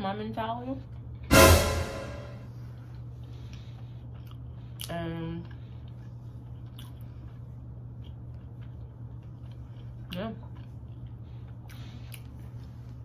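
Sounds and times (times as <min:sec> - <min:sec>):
person chewing food: 0:04.0 - 0:12.8.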